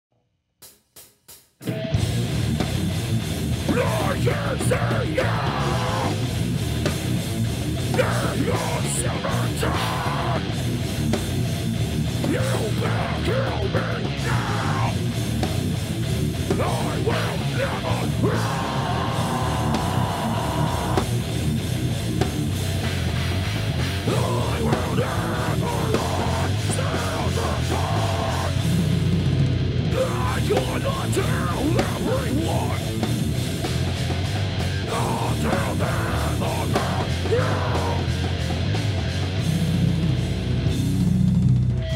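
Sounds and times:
drum kit: 0.6s - 41.9s
bass guitar: 1.6s - 41.9s
distorted electric guitar: 1.6s - 41.9s
person shouting harsh vocals: 3.7s - 6.2s, 8.0s - 10.5s, 12.3s - 15.0s, 16.6s - 21.1s, 24.1s - 28.6s, 29.9s - 32.9s, 34.9s - 38.1s.

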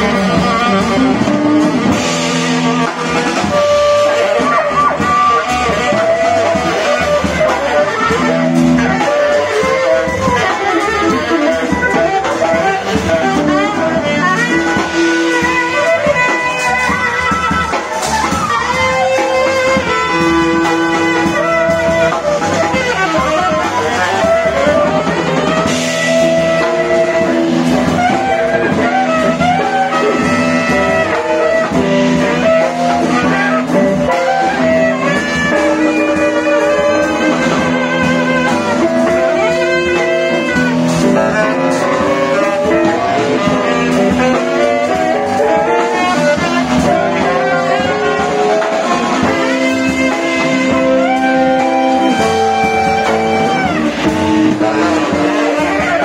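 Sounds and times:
jazz quartet playing: 0.0s - 56.0s
saxophone melody: 0.0s - 56.0s.

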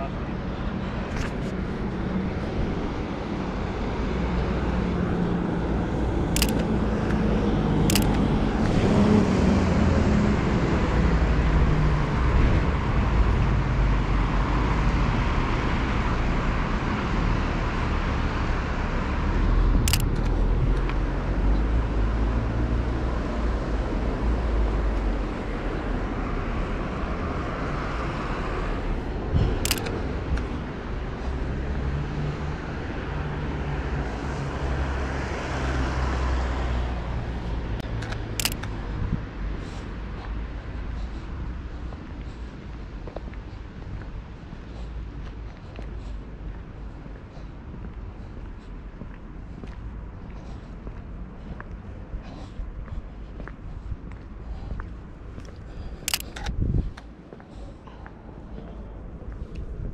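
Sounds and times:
cars passing: 0.0s - 59.9s
sharp clicks: 6.3s - 8.8s, 19.8s - 21.0s, 29.5s - 30.5s, 37.8s - 38.8s, 55.9s - 57.1s.

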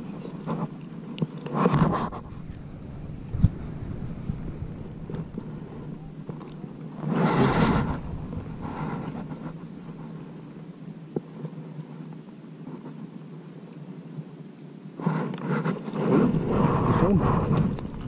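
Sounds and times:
leaves rustling: 0.0s - 10.6s
steady low rumble: 1.9s - 10.6s, 16.1s - 18.0s.

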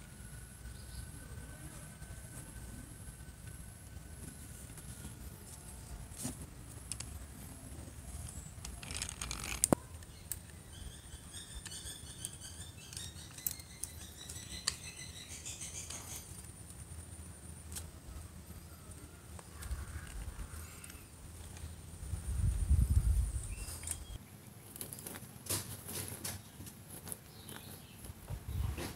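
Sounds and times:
hand drill metal clicks and rattles: 6.8s - 7.3s, 8.2s - 10.6s, 11.4s - 14.9s.

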